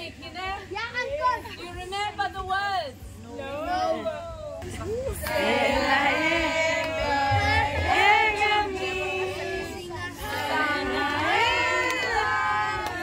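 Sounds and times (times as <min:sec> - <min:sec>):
group of people singing: 0:05.1 - 0:13.0.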